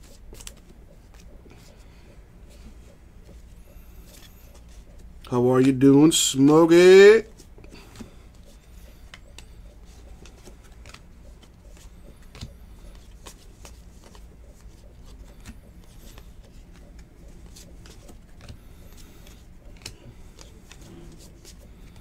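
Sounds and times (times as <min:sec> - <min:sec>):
cards clicking and flicking: 0:00.0 - 0:01.8, 0:07.4 - 0:22.0
steady low hum: 0:00.0 - 0:22.0.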